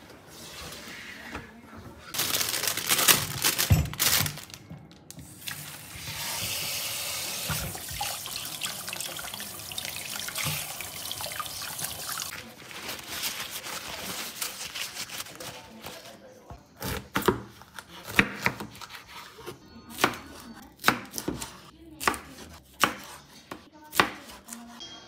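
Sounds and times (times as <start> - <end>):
paper towel rustling: 0.0 - 4.6, 11.0 - 16.3.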